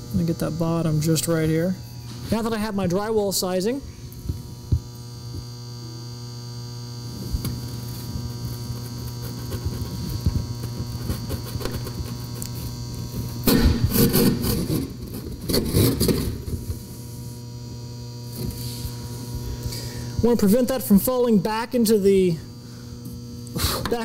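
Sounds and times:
electrical hum: 0:00.0 - 0:24.0
hand saw cutting drywall: 0:08.8 - 0:12.5, 0:13.5 - 0:16.4.

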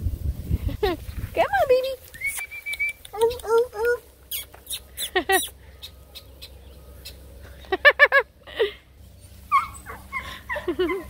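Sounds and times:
puppies yelping: 0:03.0 - 0:07.2, 0:09.4 - 0:11.0.

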